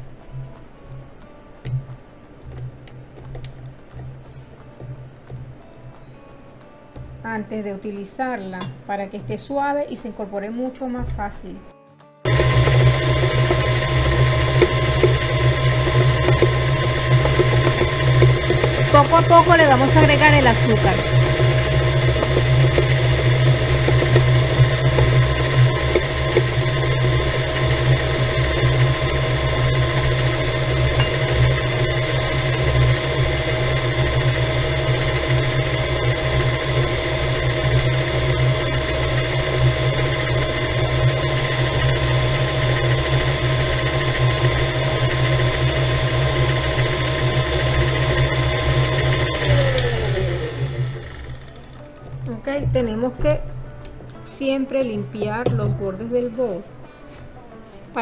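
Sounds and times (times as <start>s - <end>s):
stand mixer running: 12.3s - 52.2s.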